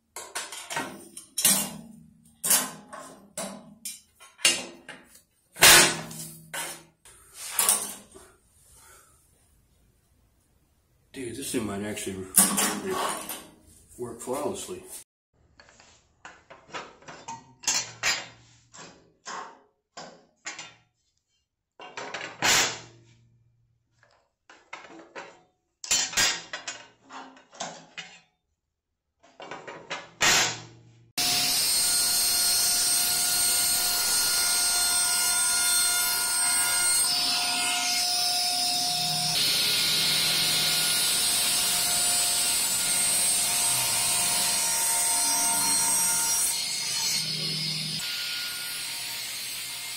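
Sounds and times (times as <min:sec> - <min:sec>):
table saw cutting wood: 0:31.2 - 0:49.9.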